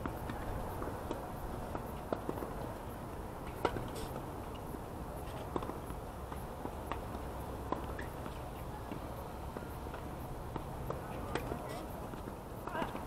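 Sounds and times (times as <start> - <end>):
racket hitting tennis ball: 3.4 - 4.2, 9.6 - 13.0.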